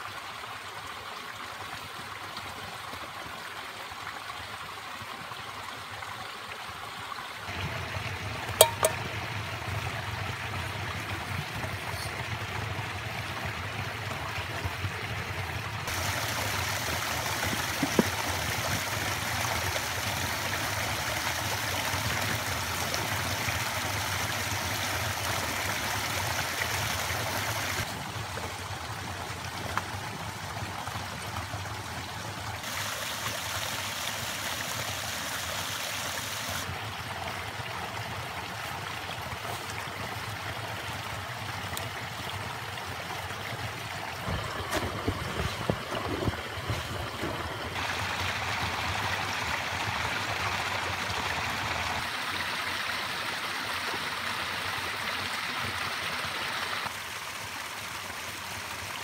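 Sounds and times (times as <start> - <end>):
creek rushing and gurgling: 0.0 - 59.0
knocks and rustles: 44.2 - 47.8.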